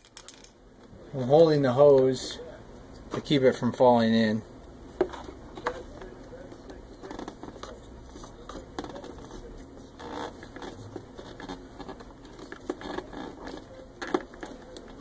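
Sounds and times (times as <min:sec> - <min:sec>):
plastic hose fitting rubbing: 0:09.9 - 0:15.0.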